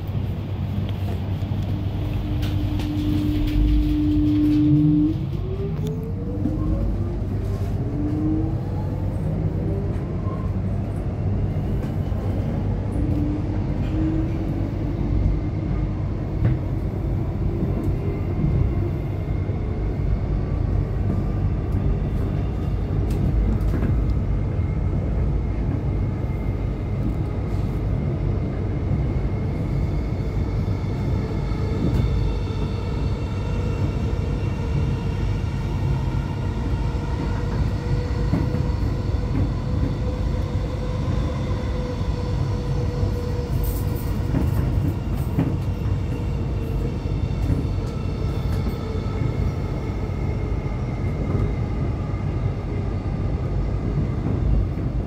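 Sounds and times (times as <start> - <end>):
train wheels rumbling on track: 0.0 - 55.0.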